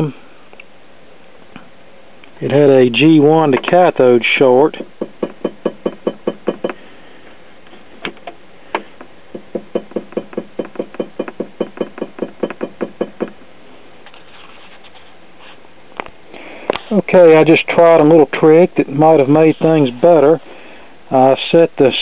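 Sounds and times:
tapping on glass tube neck: 4.7s - 6.8s, 8.0s - 13.4s.

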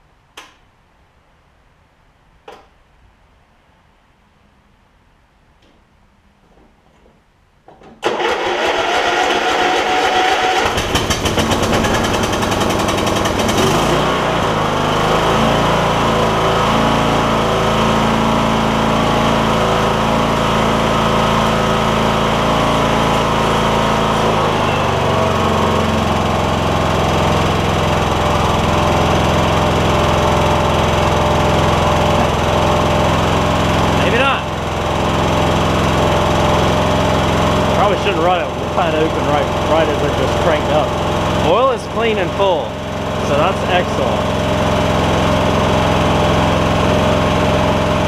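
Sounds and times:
lawn tractor engine running: 8.0s - 48.0s.

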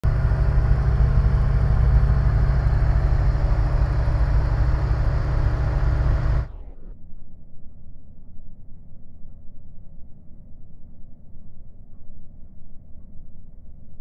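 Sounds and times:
piston aircraft engine droning: 0.0s - 6.7s.

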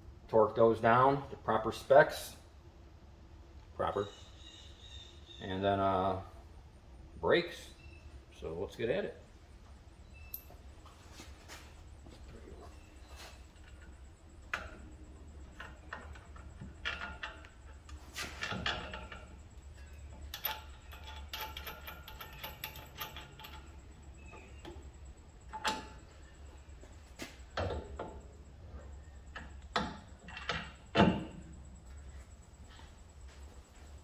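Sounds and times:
steady low hum: 0.0s - 34.0s
metallic clicks and knocks: 15.5s - 23.8s.

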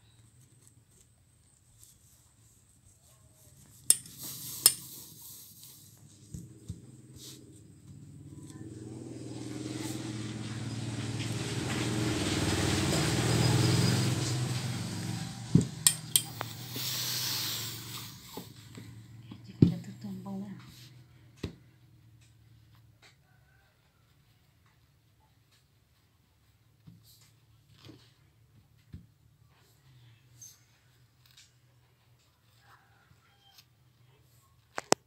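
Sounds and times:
vehicle passing by: 4.2s - 22.0s
sharp clicks: 15.8s - 16.9s.

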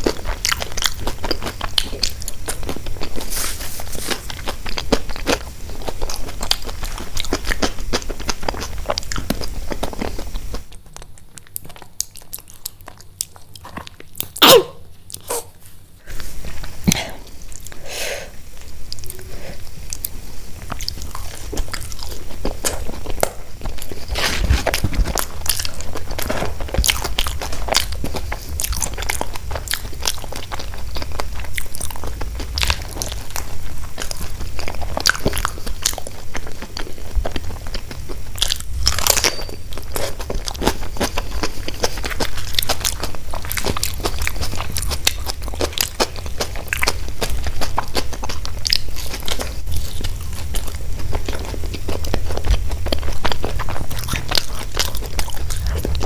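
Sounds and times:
crunchy chewing: 0.0s - 56.0s.

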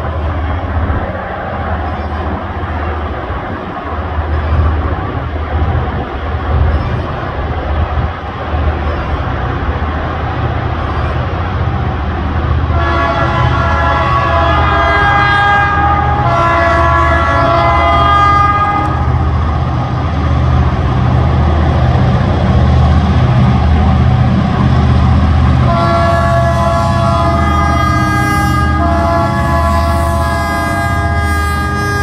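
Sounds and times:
diesel locomotive engines throbbing: 0.0s - 32.0s
locomotive horn blasts: 12.7s - 19.1s, 25.7s - 32.0s.

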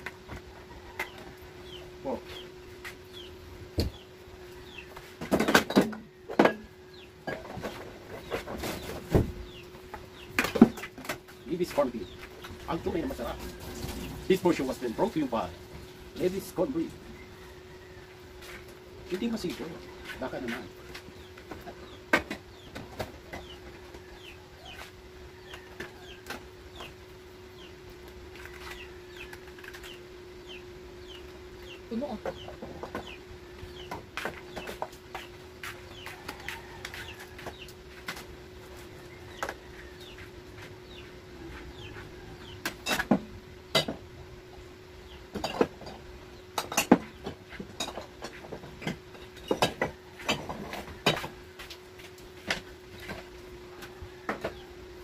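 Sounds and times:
bird peeping: 0.8s - 5.1s, 17.1s - 37.8s.

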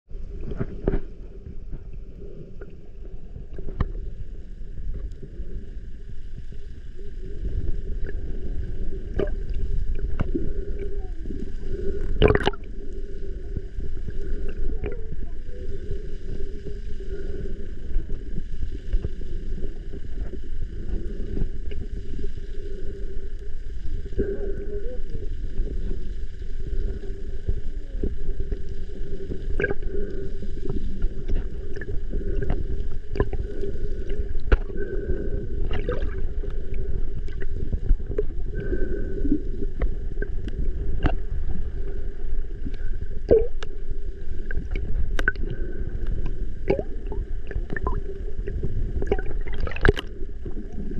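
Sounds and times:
low underwater rumble and drone: 0.0s - 50.9s
sharp underwater clicks and pops: 12.1s - 12.7s, 34.4s - 34.8s, 40.4s - 41.2s, 44.5s - 46.9s, 49.0s - 50.1s.

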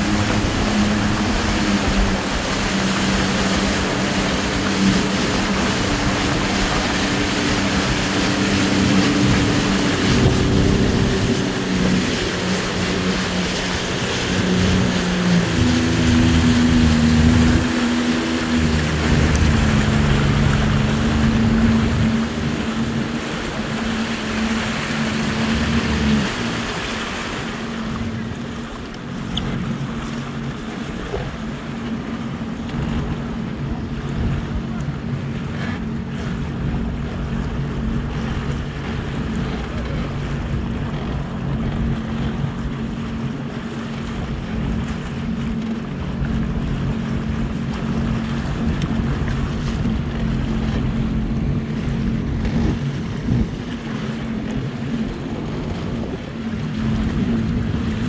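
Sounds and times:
wind noise: 0.0s - 28.3s, 46.4s - 58.0s
jet ski engines: 0.0s - 58.0s
rushing water: 0.0s - 58.0s.

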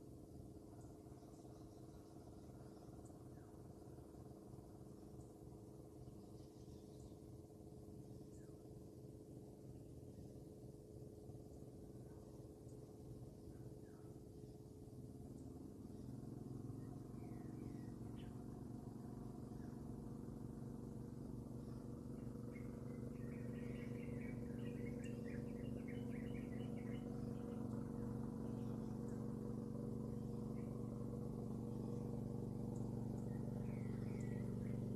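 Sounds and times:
low hum: 0.0s - 34.9s
birds chirping: 19.5s - 34.9s.

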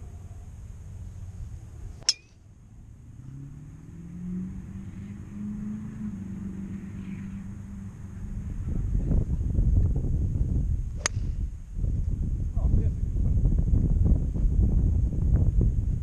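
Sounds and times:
low motor hum: 0.0s - 16.0s
golf driver striking ball: 2.0s - 2.4s, 11.0s - 11.4s.

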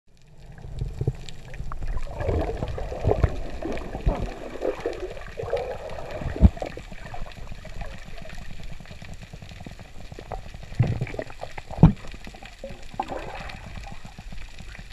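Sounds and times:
low rumbles: 0.1s - 14.3s
muffled water gurgling underwater: 0.1s - 14.9s.

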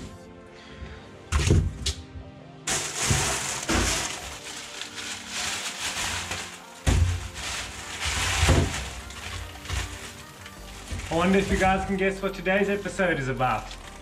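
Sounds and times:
background music: 0.0s - 14.0s
frozen packages knocking: 1.3s - 1.8s, 2.7s - 12.0s
plastic bag rustling: 2.7s - 14.0s.

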